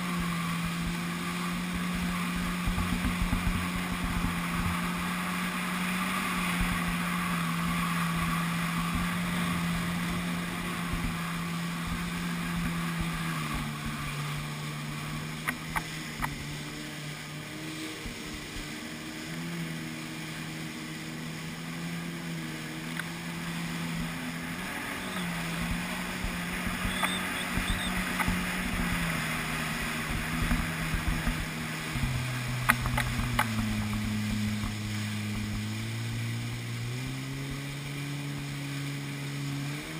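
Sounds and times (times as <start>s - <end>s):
jet ski engine drone: 0.0s - 39.9s.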